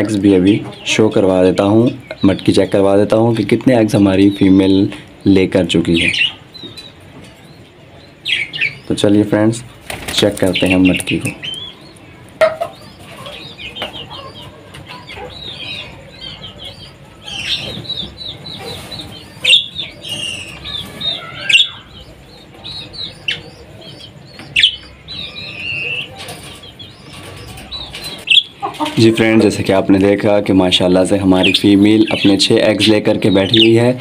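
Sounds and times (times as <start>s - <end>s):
budgerigars chattering: 0.0s - 34.0s.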